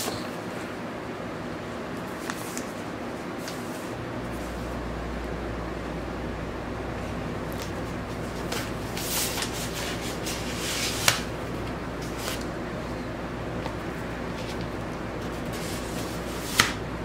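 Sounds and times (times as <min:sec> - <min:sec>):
steady low hum: 0:00.0 - 0:17.0
paper and cardboard rustling: 0:07.6 - 0:12.5, 0:13.6 - 0:16.8.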